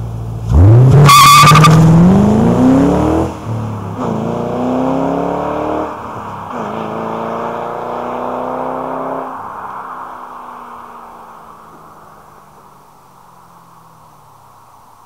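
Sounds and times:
car engine accelerating hard: 0:00.0 - 0:11.8.

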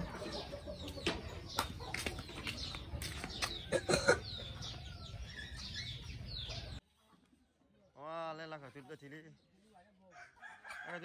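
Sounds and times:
chickens clucking: 0:00.0 - 0:07.5
small birds chirping: 0:00.0 - 0:10.9.

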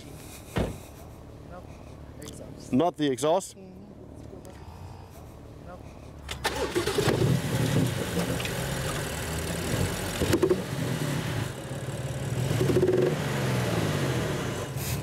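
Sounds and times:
car engine misfiring at idle: 0:06.2 - 0:13.0.

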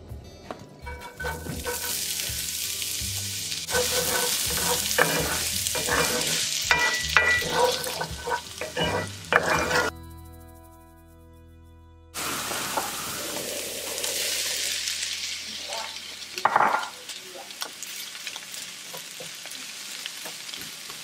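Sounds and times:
onion sizzling in oil: 0:00.9 - 0:09.9, 0:12.2 - 0:21.0
wooden spoon scraping pan: 0:01.0 - 0:02.1, 0:03.7 - 0:09.9.

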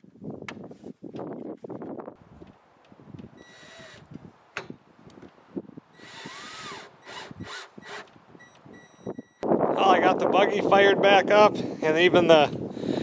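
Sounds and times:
cordless drill driving screws: 0:03.4 - 0:04.1, 0:06.0 - 0:08.2.

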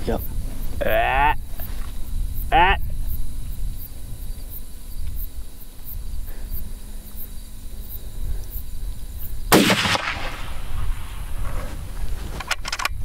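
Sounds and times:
gunshot: 0:09.5 - 0:11.7.

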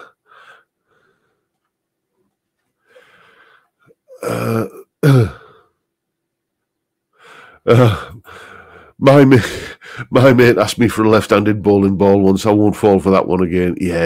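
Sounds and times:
man breathing: 0:00.0 - 0:01.8, 0:02.6 - 0:04.0, 0:07.1 - 0:10.1.

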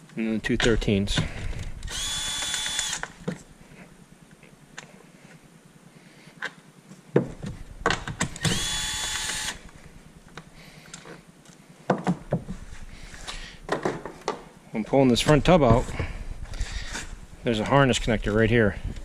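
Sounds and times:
impact driver spinning out bolt: 0:01.2 - 0:03.2, 0:08.2 - 0:09.7.

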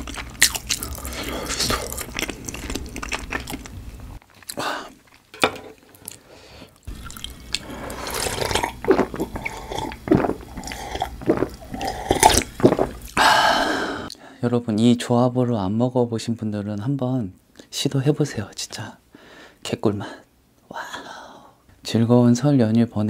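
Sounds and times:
gulping and swallowing: 0:06.9 - 0:13.2.

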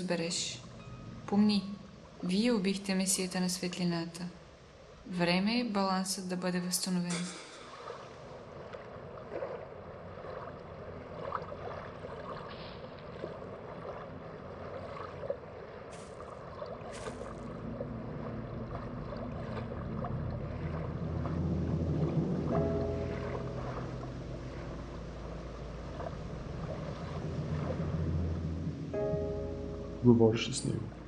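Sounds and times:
low musical drone: 0:00.0 - 0:02.6, 0:17.0 - 0:31.0
water: 0:00.0 - 0:31.0
wind: 0:00.0 - 0:31.0.

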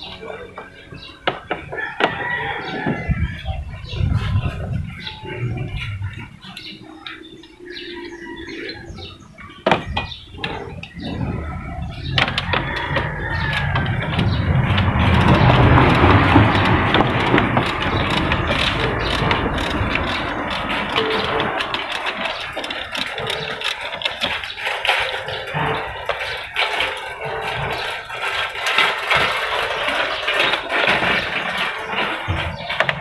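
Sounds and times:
steady rushing noise: 0:10.8 - 0:33.0
hand tools ratcheting on metal: 0:11.9 - 0:33.0.

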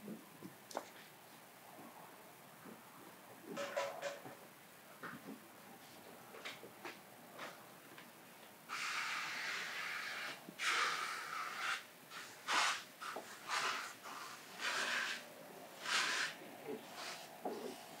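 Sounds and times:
spray gun spraying bursts: 0:08.7 - 0:15.2, 0:15.8 - 0:17.8.

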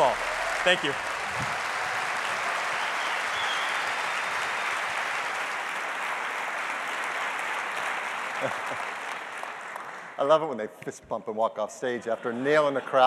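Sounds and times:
large audience applauding: 0:00.0 - 0:10.4.

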